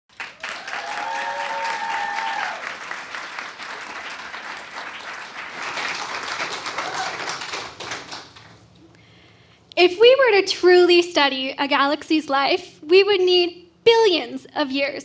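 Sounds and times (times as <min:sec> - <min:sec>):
audience applauding: 0:00.1 - 0:08.7
person cheering: 0:00.4 - 0:02.8, 0:06.7 - 0:07.4.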